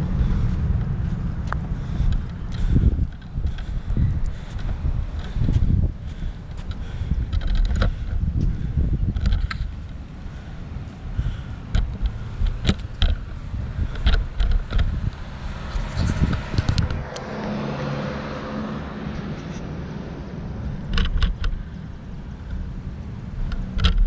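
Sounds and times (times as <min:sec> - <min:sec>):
low rumble: 0:00.0 - 0:24.0
vehicle driving past: 0:13.2 - 0:21.0.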